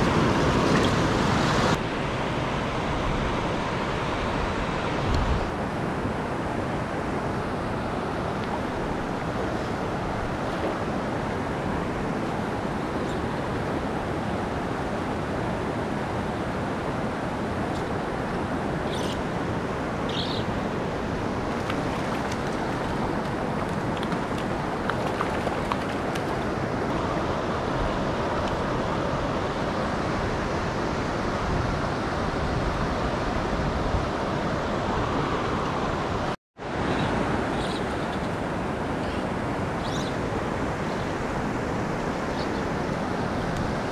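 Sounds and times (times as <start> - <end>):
stream rushing over rocks: 0.0 - 30.3.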